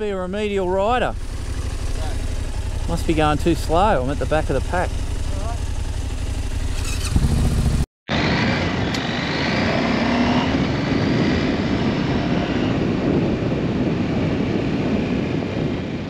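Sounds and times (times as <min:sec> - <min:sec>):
motorcycle engine running: 0:00.0 - 0:07.9
wind noise: 0:06.7 - 0:16.0.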